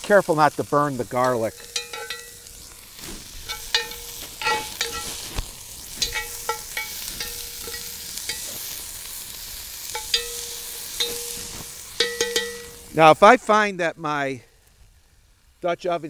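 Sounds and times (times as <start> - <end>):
onions sizzling in hot oil: 0.0 - 16.0
metal utensil scraping pot: 1.1 - 13.0.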